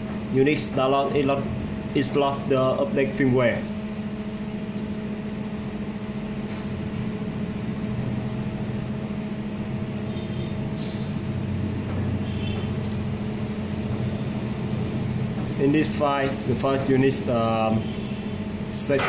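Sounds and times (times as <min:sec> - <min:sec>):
mechanical hum with low tones: 0:00.0 - 0:19.0.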